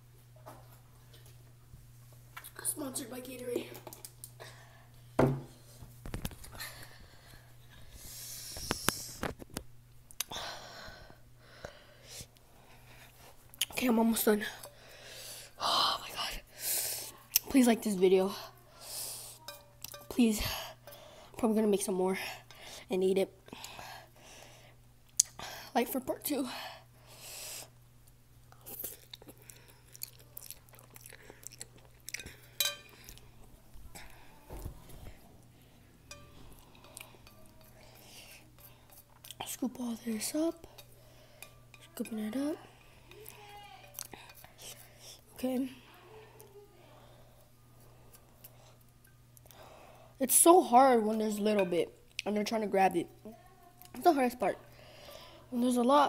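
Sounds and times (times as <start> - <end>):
faint low hum: 0.0 - 56.0
open-mouthed chewing: 28.5 - 33.3.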